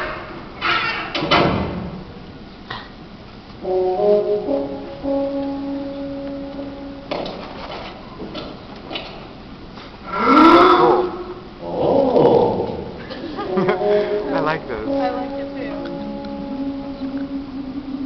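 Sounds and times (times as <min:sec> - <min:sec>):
music over loudspeakers: 0:03.6 - 0:07.2, 0:13.5 - 0:18.0.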